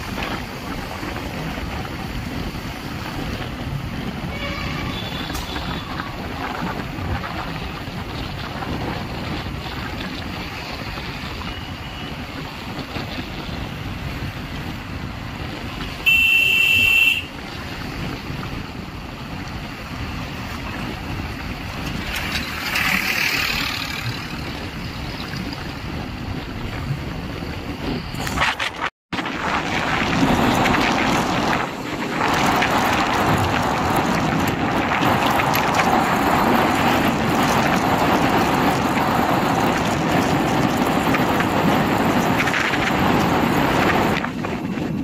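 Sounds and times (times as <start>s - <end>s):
passing traffic rush: 0.0s - 45.0s
wind and road noise: 0.0s - 45.0s
vehicle horn: 4.2s - 6.2s, 15.9s - 17.4s.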